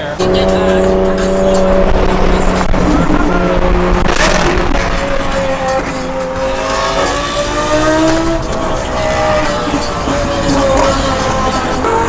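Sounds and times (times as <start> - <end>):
car engine droning inside cabin: 0.0 - 12.0
loud rush of noise: 0.0 - 12.0.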